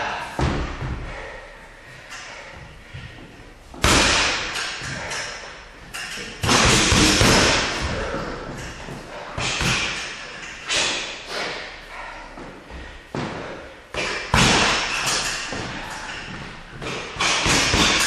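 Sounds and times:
boxing gloves punching a ball: 3.8s - 4.6s, 6.4s - 8.4s, 9.4s - 10.0s, 13.2s - 15.8s, 16.8s - 18.0s.

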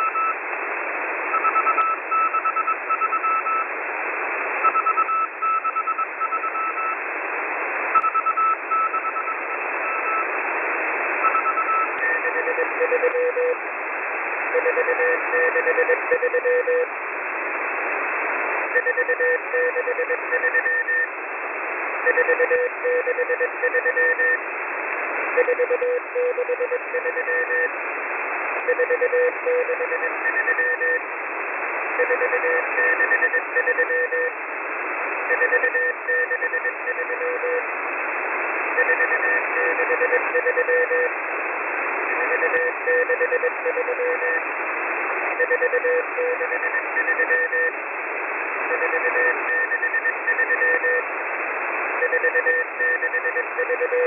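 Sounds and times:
morse code beeps: 0.0s - 0.4s, 1.3s - 3.7s, 4.6s - 7.0s, 8.0s - 10.3s, 11.2s - 13.6s, 14.5s - 16.9s, 18.8s - 21.1s, 22.0s - 24.4s, 25.4s - 27.7s, 28.7s - 31.0s, 32.0s - 34.3s, 35.3s - 37.6s, 38.8s - 41.1s, 42.2s - 44.4s, 45.4s - 47.7s, 48.7s - 51.0s, 52.0s - 54.0s
radio hiss: 0.0s - 54.0s.

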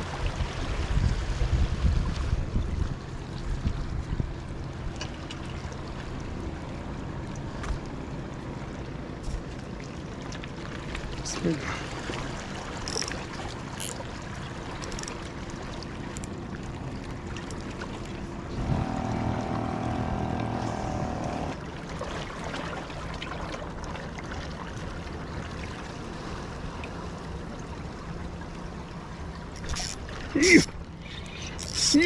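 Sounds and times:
wind noise: 0.0s - 4.4s
steady mechanical hum: 0.1s - 32.0s
water lapping against rocks: 9.2s - 32.0s.

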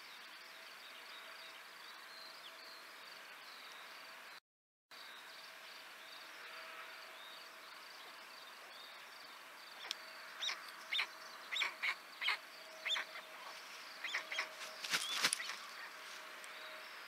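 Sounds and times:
short high bird calls: 10.4s - 15.9s
stork wings flapping: 14.4s - 15.7s.

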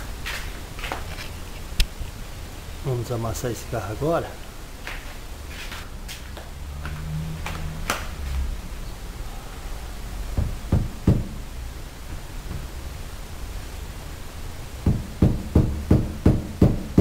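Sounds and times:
tool striking metal door panel: 10.4s - 11.4s.

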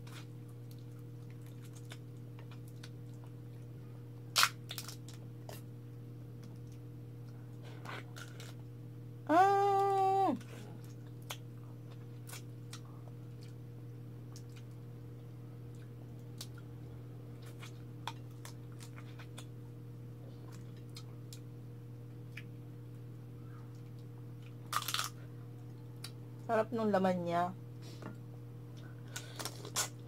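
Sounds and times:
low hum: 0.0s - 30.0s
crab shell cracking: 4.3s - 5.2s, 24.7s - 25.2s.

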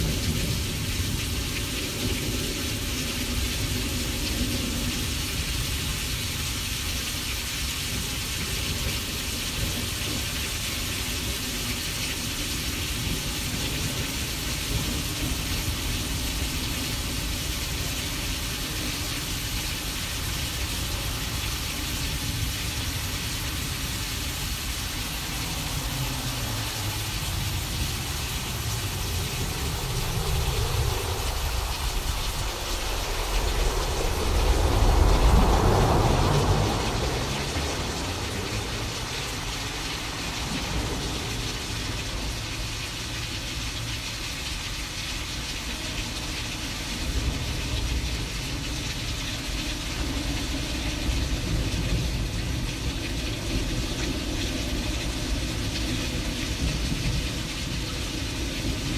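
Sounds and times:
rain-like hiss: 0.0s - 58.9s
thunder rumbling: 12.2s - 42.6s.

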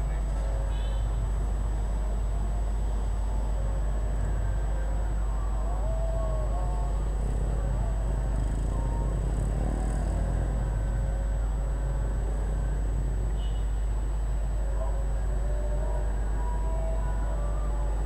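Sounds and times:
low traffic rumble: 0.0s - 18.0s
motorcycles passing: 5.4s - 13.4s
cars passing: 7.1s - 13.3s.

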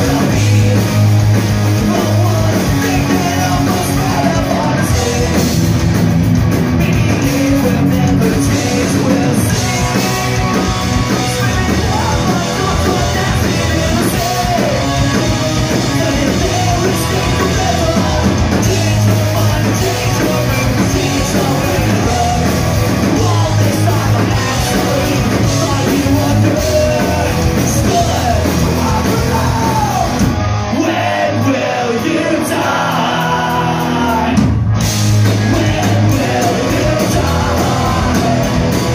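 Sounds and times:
shouted and sung vocals: 0.0s - 5.6s, 6.8s - 34.6s, 35.2s - 38.9s
distorted electric guitars: 0.0s - 38.9s
punk rock band playing live: 0.0s - 38.9s.

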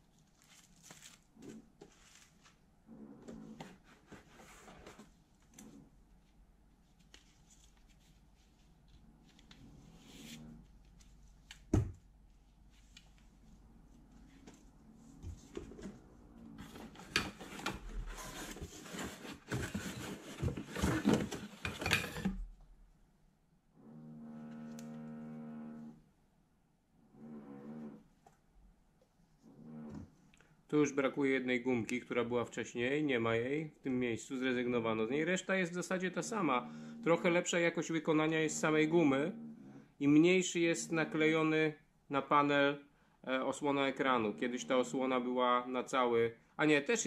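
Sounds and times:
plastic bags rustling: 0.0s - 2.6s.

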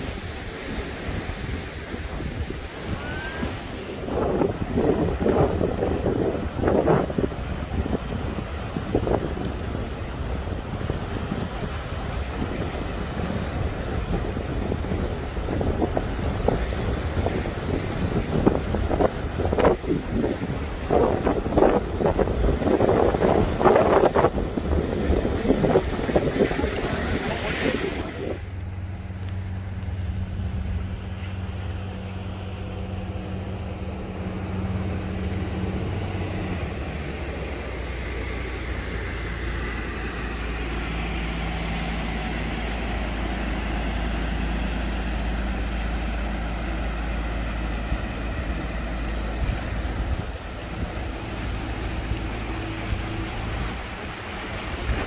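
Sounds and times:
surf breaking on rocks: 0.0s - 28.6s, 49.9s - 55.0s
wind on microphone: 0.0s - 28.6s, 29.7s - 55.0s
boat motor humming: 0.0s - 55.0s.

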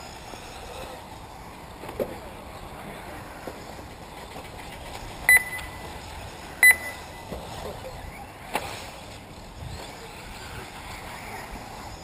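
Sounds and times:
rc buggies running on dirt: 0.0s - 12.0s
loud electronic beep: 5.3s - 5.8s, 6.6s - 7.2s.

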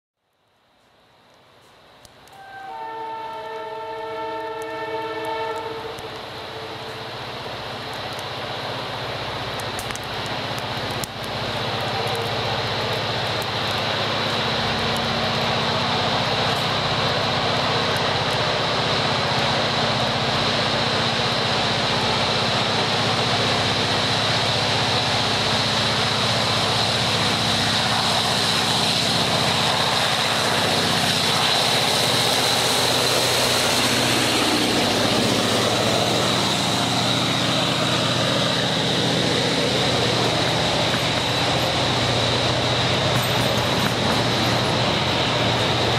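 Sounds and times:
train wheels rumbling on rails: 1.6s - 45.9s
locomotive engine running under load: 7.3s - 45.9s.

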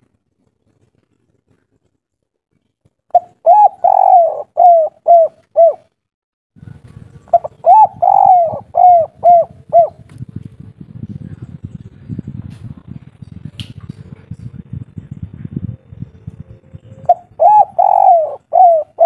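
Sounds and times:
dove cooing: 3.1s - 5.9s, 7.3s - 10.0s, 16.8s - 19.0s.

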